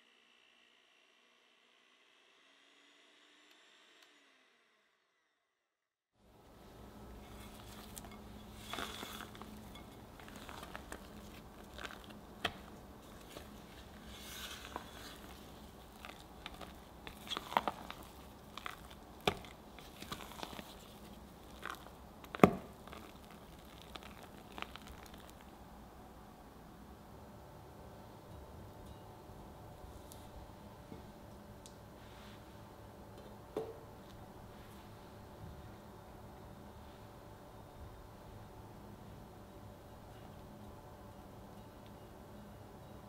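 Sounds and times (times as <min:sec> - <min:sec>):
spatula squishing buttercream: 0:07.1 - 0:25.5.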